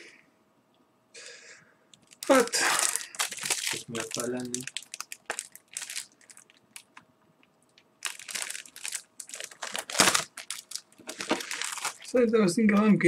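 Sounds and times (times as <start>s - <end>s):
paper packaging crinkling: 2.0s - 7.0s, 7.6s - 12.3s.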